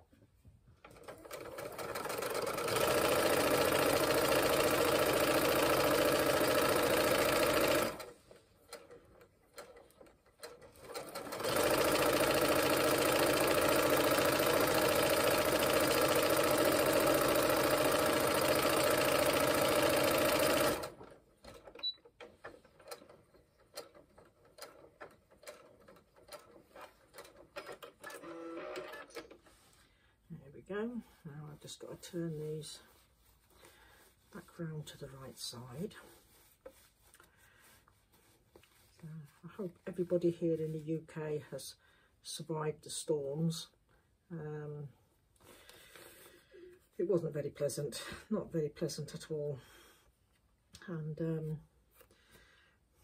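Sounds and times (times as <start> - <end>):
sewing machine stitching: 0.8 - 29.4.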